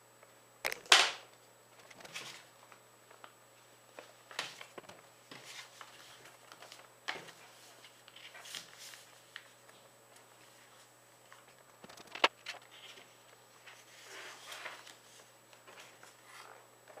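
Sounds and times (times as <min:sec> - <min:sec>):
paper being folded: 0:04.0 - 0:16.6.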